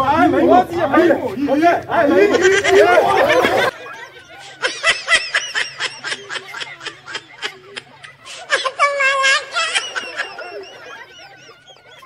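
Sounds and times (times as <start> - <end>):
person laughing: 2.2 - 3.7, 4.4 - 12.0.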